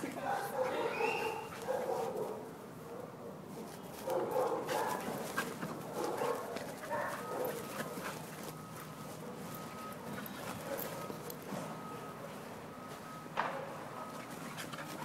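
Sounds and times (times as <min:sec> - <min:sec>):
young dogs barking in play: 0:00.2 - 0:03.4, 0:04.0 - 0:08.2.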